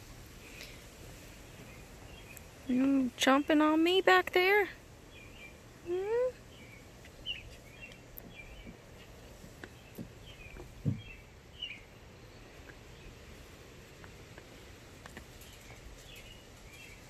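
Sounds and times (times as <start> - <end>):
faint bird chirps: 5.1 - 13.2
soft knocks: 9.5 - 11.2.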